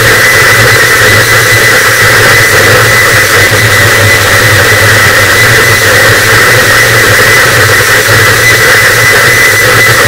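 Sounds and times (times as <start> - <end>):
dense static noise: 0.0 - 10.0
low steady hum: 0.0 - 10.0
thin high whine: 0.0 - 10.0.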